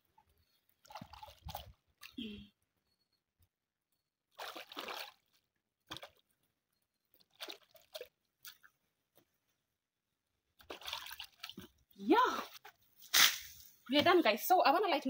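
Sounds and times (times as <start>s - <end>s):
water splashing in a basin: 0.1s - 2.2s, 4.3s - 6.5s, 7.1s - 8.8s, 10.6s - 13.5s.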